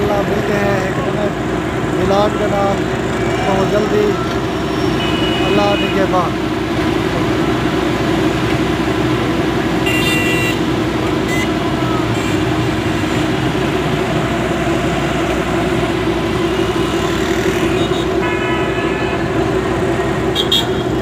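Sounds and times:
vehicles passing: 0:00.0 - 0:21.0
vehicle horn honking: 0:04.9 - 0:06.2, 0:09.8 - 0:10.6, 0:17.7 - 0:19.3, 0:20.3 - 0:21.0.

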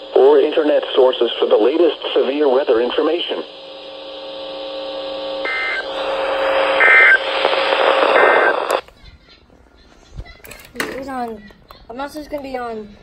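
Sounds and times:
buzzing hum: 0:00.0 - 0:08.8
radio static: 0:00.0 - 0:08.9.

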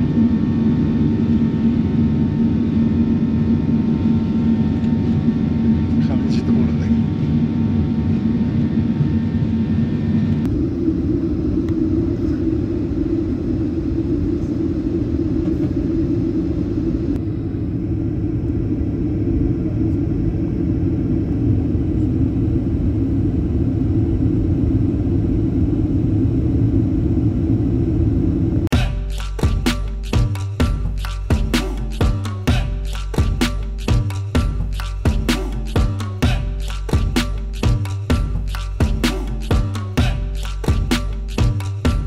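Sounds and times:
airliner cabin rumble: 0:00.0 - 0:29.0.

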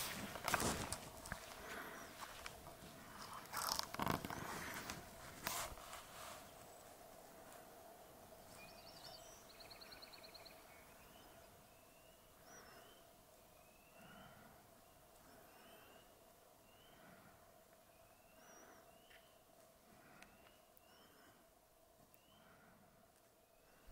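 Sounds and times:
footsteps crunching on rock: 0:00.0 - 0:05.0
songbird singing: 0:00.0 - 0:05.2, 0:06.1 - 0:23.9
faint steady hum: 0:00.0 - 0:23.9.

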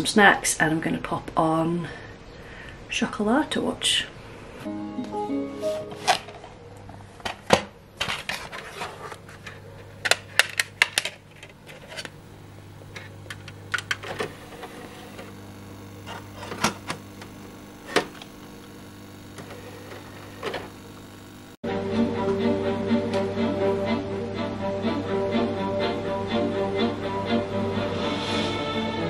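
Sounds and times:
low steady hum: 0:05.8 - 0:27.9
plastic dvd cases clicking: 0:07.2 - 0:12.1.

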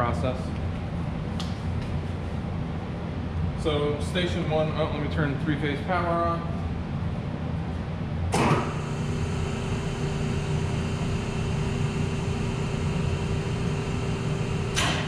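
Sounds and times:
low background hum: 0:00.0 - 0:15.0
electric motor hum with whine: 0:08.4 - 0:15.0.

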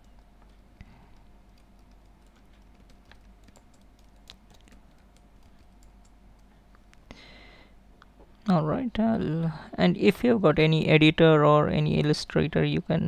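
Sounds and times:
typing on keyboard: 0:00.0 - 0:06.5.

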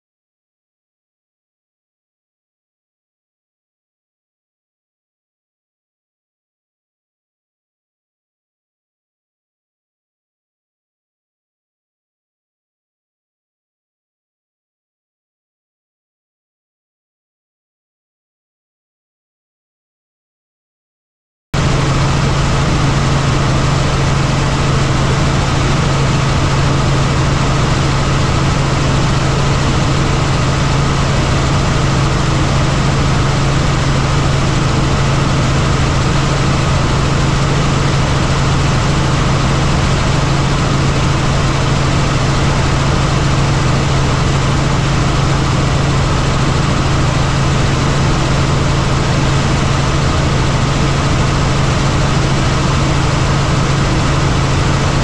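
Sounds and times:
helicopter engine and rotor drone: 0:21.6 - 0:55.0.

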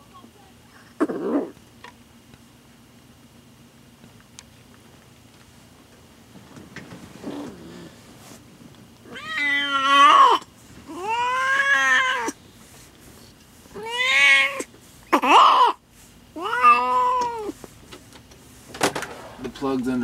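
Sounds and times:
cat meowing: 0:09.1 - 0:12.4, 0:13.8 - 0:15.8, 0:16.4 - 0:17.6.

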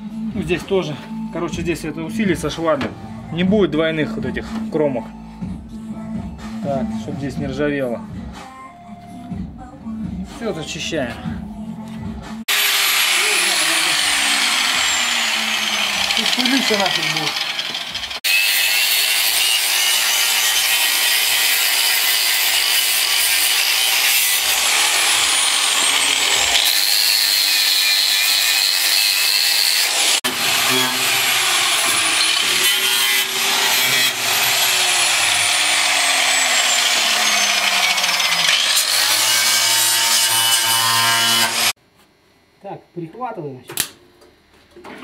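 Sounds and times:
angle grinder cutting metal: 0:12.5 - 0:41.8.

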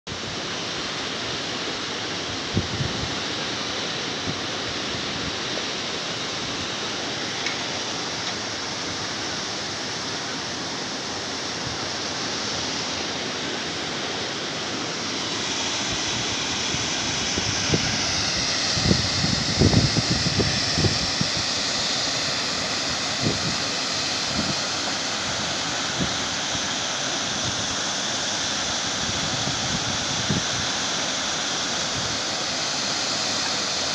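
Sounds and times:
wind rushing on microphone: 0:02.4 - 0:03.1, 0:16.7 - 0:21.4, 0:23.2 - 0:23.6, 0:24.3 - 0:24.6, 0:29.0 - 0:30.6
wind gusts buffeting microphone: 0:17.2 - 0:21.4.

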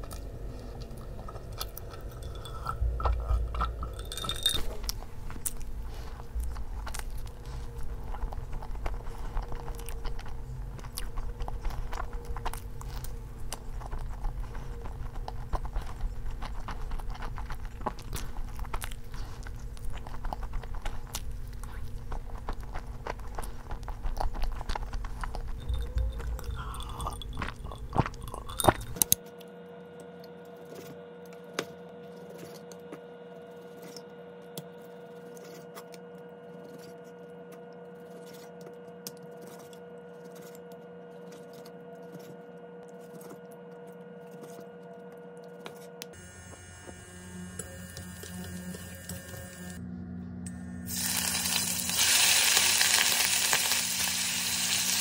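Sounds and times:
close chewing and mouth smacks: 0:00.0 - 0:29.5
steady hum: 0:00.0 - 0:55.0.

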